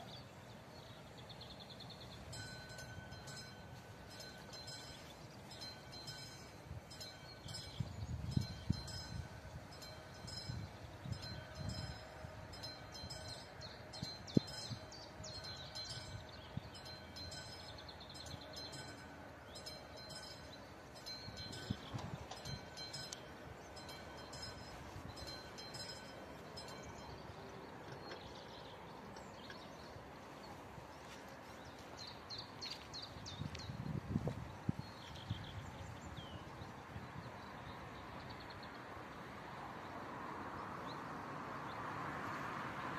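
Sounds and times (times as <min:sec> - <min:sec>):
level-crossing warning bell ringing: 0:02.3 - 0:27.8.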